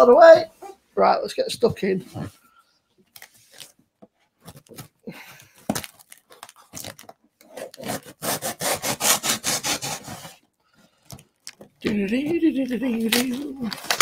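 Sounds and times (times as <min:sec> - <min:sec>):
cardboard being scraped and torn: 0:06.8 - 0:10.4.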